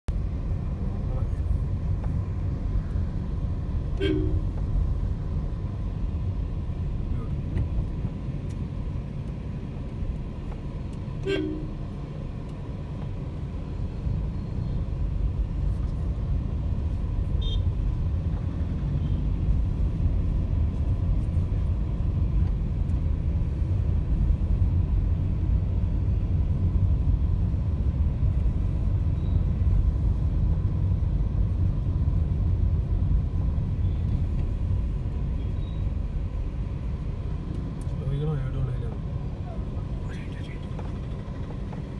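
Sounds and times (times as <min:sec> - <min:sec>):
car engine and road rumble: 0:00.0 - 0:41.9
car horn toot: 0:04.0 - 0:04.6, 0:11.2 - 0:11.8, 0:17.4 - 0:17.7
brief tone: 0:29.1 - 0:29.5, 0:35.4 - 0:35.9.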